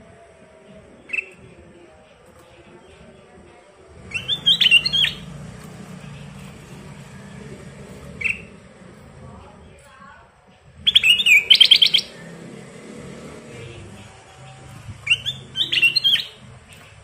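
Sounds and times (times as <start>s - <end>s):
bird singing warbling phrases: 1.0s - 1.5s, 4.0s - 9.9s, 10.6s - 12.5s, 13.5s - 17.0s.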